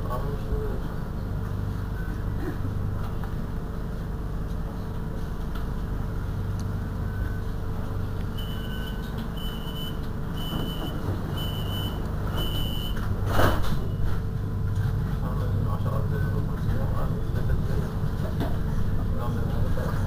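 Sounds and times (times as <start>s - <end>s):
tram equipment humming: 0.0s - 20.0s
door warning beeps: 8.4s - 13.1s.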